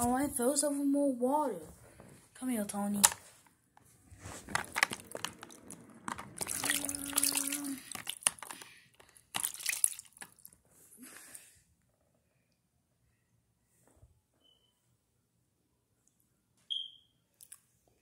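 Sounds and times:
handling clicks and knocks: 4.4 - 6.7, 7.9 - 9.5
water filling a container: 4.7 - 10.5.

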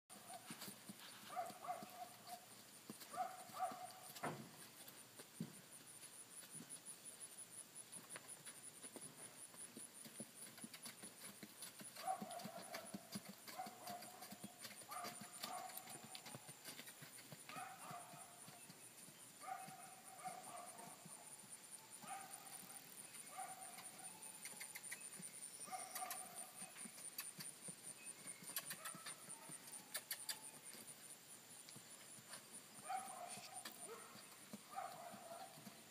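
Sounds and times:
hoof clops: 8.0 - 19.9.

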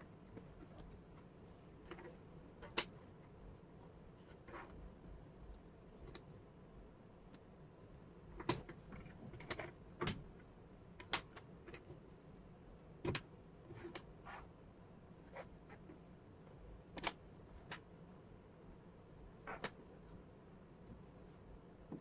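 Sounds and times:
wooden puzzle pieces clicking: 11.0 - 11.9, 16.9 - 17.9.

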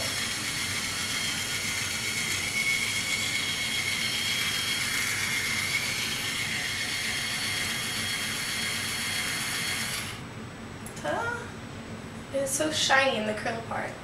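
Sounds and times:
hair iron motor whine: 0.0 - 10.3.

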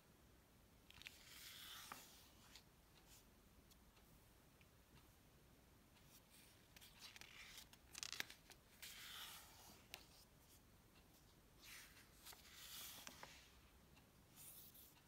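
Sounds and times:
book pages turning: 0.9 - 2.7, 6.1 - 10.6, 11.6 - 13.6
light paper clicks: 6.0 - 10.3, 11.6 - 13.5.

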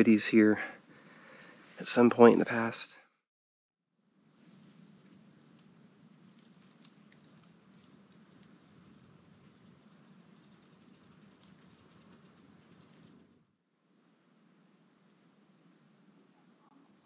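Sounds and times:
crickets trilling: 4.2 - 17.0
high-pitched insect chirping: 7.2 - 16.1.

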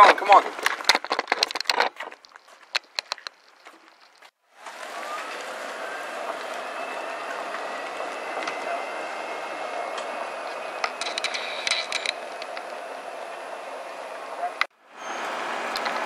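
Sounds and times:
rattling clicks: 0.0 - 4.3, 10.8 - 12.8
tyre and road noise: 0.0 - 16.0
golf cart motor whining: 4.5 - 16.0.

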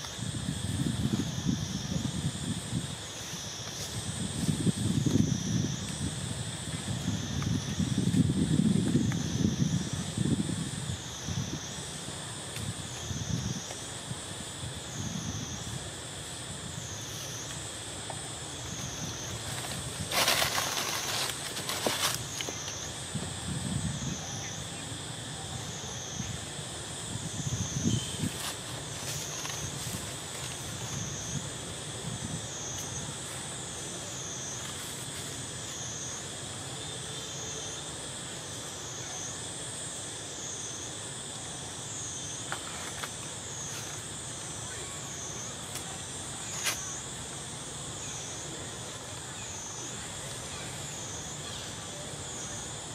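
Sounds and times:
high insect drone: 0.0 - 52.9
rustling: 19.2 - 22.7.

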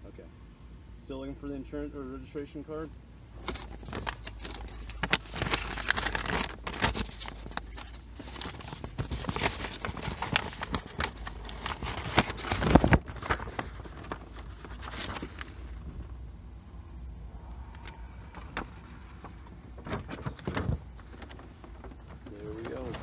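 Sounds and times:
papers rustling and crinkling: 3.4 - 16.1, 17.6 - 23.0.

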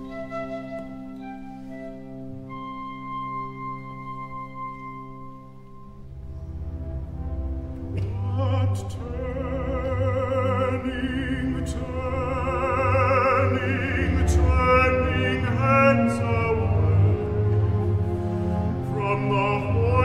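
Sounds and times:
orchestra accompaniment: 0.0 - 20.0
baritone singing with vibrato: 7.9 - 20.0.

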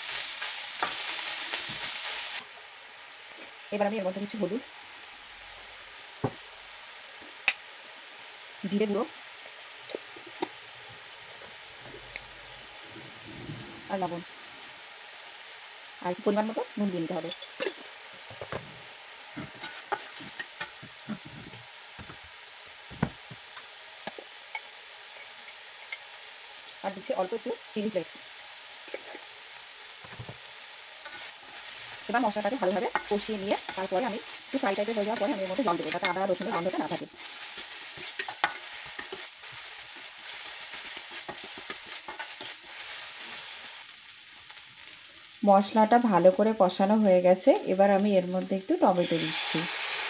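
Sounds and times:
spices sizzling in hot oil: 0.0 - 50.0
spatula scraping a pan: 19.3 - 21.6, 31.0 - 32.0, 32.6 - 43.6.

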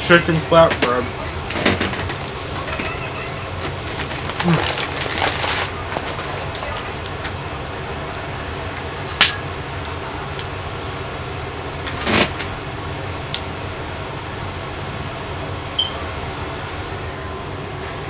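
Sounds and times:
low room hum: 0.0 - 18.0
man eating sandwich: 2.3 - 7.0.

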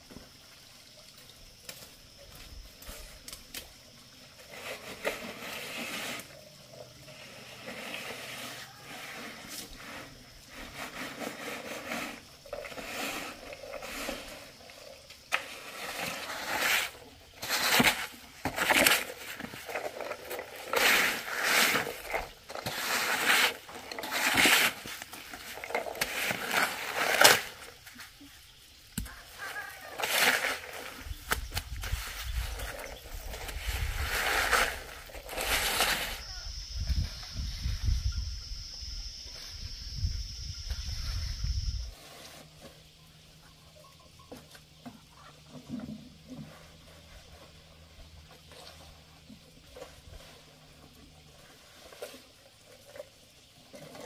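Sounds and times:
board scraping wet concrete: 2.8 - 37.9, 40.6 - 43.0.

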